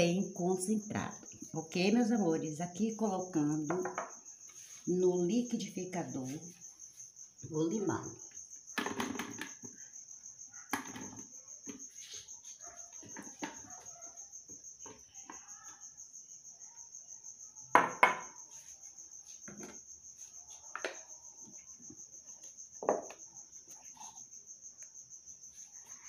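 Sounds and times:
cricket chirping: 0.0s - 26.0s
plastic blender jar knocks: 3.7s - 4.1s.

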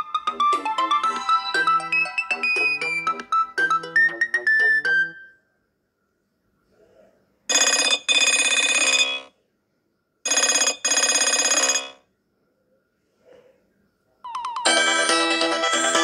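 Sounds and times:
polyphonic ringtone melody: 0.0s - 5.3s, 14.4s - 16.0s
ringtone with quick rising run: 0.0s - 5.4s, 14.3s - 16.0s.

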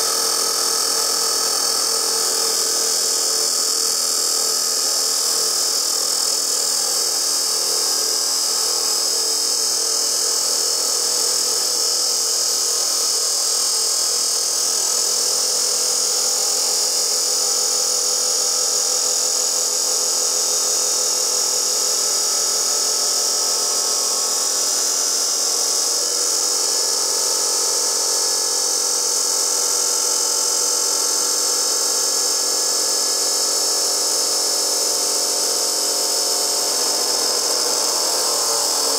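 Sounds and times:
saw motor whine: 0.0s - 38.9s
chop saw grinding steel: 34.3s - 38.9s.

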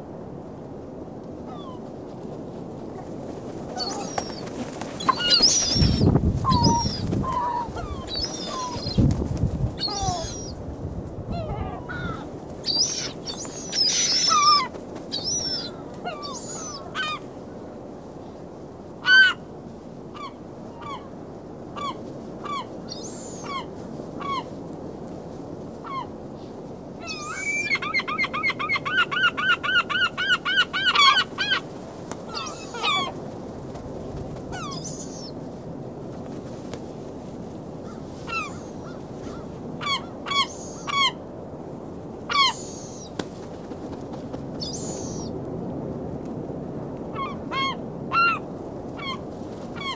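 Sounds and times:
gulls calling: 3.8s - 9.1s, 9.8s - 10.6s, 11.4s - 17.2s, 32.3s - 33.2s.

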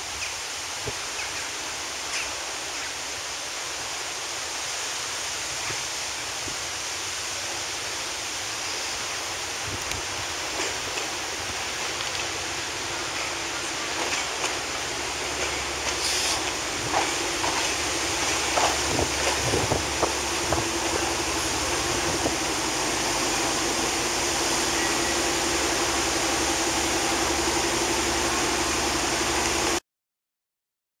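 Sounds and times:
diesel locomotive engine drone: 0.0s - 29.8s
wind noise hiss: 0.0s - 29.8s
wheels clicking on track: 9.8s - 29.8s.

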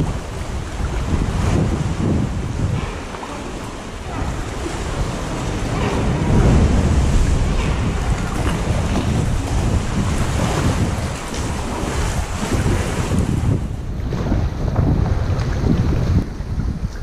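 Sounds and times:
sea swell sloshing against rock: 0.0s - 16.8s
wind buffeting microphone: 0.0s - 17.0s.

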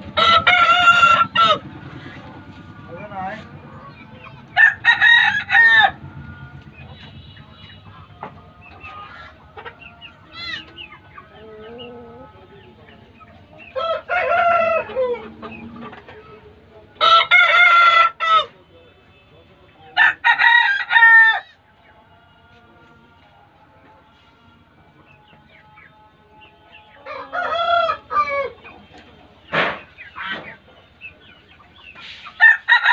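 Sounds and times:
roosters crowing: 0.0s - 16.2s, 17.0s - 18.6s, 19.9s - 21.6s, 26.6s - 30.7s, 31.5s - 32.9s
chickens clucking: 0.0s - 32.9s.

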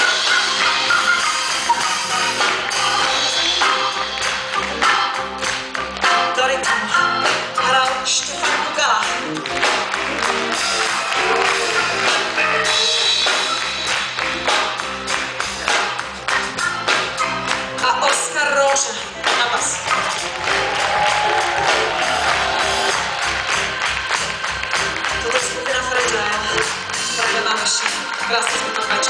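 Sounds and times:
drum kit: 0.0s - 29.0s
electric guitars: 0.0s - 29.0s
keyboard playing: 0.0s - 29.0s
person singing: 1.7s - 5.4s, 11.2s - 13.6s.

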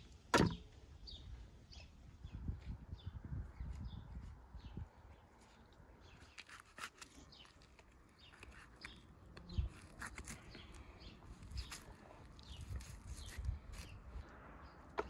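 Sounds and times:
dull thump: 0.3s - 0.6s
faint birds chirping: 0.5s - 15.0s.

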